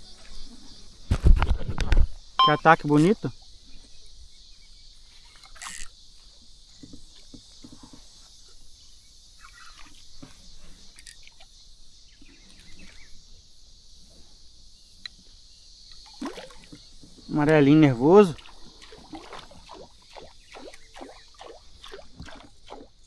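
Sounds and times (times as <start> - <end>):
steady high-pitched hiss: 0.0 - 23.0
small water splashes: 9.4 - 10.2, 16.0 - 23.0.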